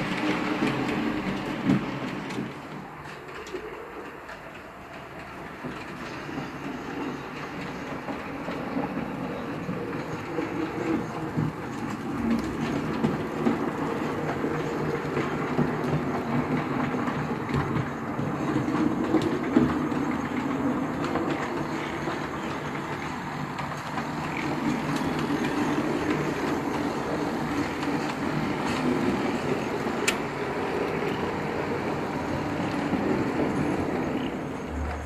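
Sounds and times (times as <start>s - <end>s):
model train running on rails: 0.0s - 35.0s.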